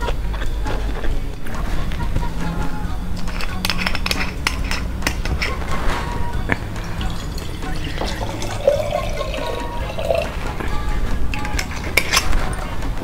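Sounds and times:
background music: 0:00.0 - 0:13.0
liquid pouring into a glass jar: 0:06.8 - 0:10.4.

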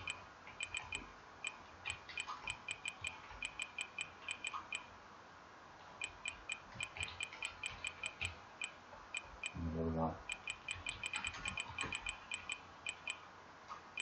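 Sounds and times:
keyboard key clicks: 0:10.3 - 0:13.1.

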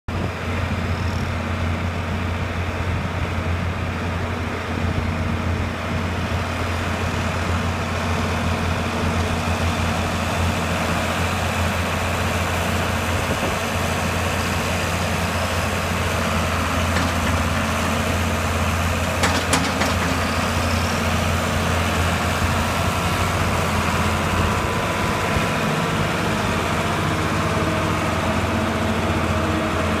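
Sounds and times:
tractor diesel engine droning: 0:00.1 - 0:30.0.

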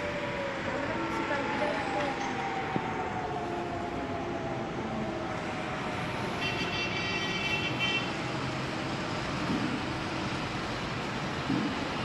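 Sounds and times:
distant road traffic: 0:00.0 - 0:12.0
vehicle horn: 0:06.4 - 0:08.1.

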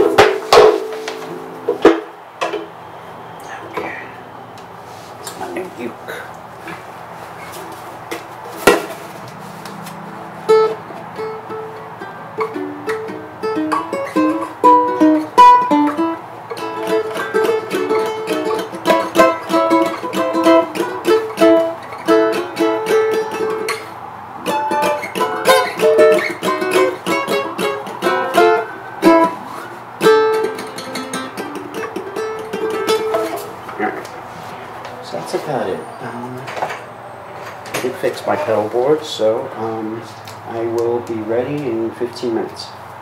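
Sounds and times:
ukulele strumming and picking: 0:00.0 - 0:02.8, 0:07.4 - 0:34.7.

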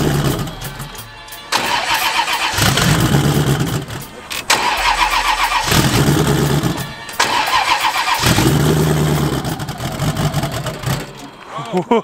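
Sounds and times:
engine starter cranking: 0:00.0 - 0:11.4
engine running rough: 0:00.0 - 0:11.5.

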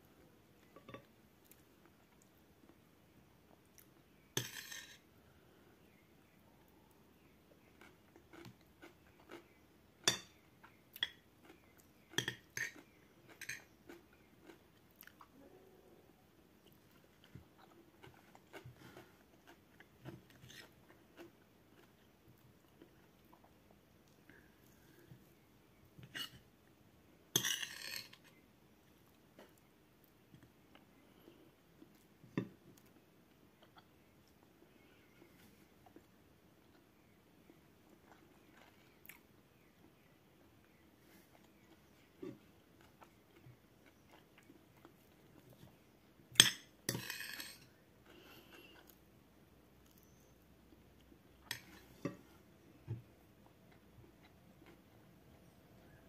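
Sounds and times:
spoon scraping across plate: 0:04.4 - 0:05.0, 0:26.0 - 0:26.4, 0:27.4 - 0:28.3, 0:46.9 - 0:47.7
person chewing food: 0:07.2 - 0:09.6, 0:10.3 - 0:15.5, 0:16.6 - 0:25.4, 0:35.8 - 0:45.8, 0:53.4 - 0:56.0.

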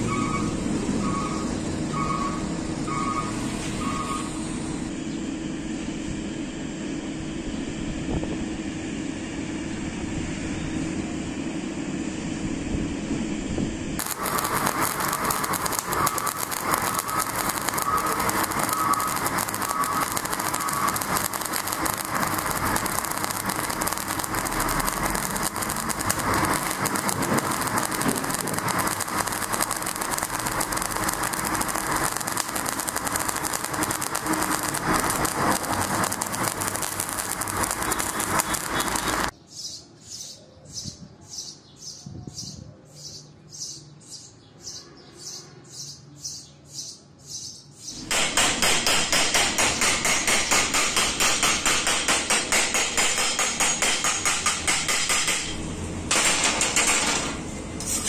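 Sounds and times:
welding arc crackling: 0:14.0 - 0:39.3, 0:48.0 - 0:58.0.

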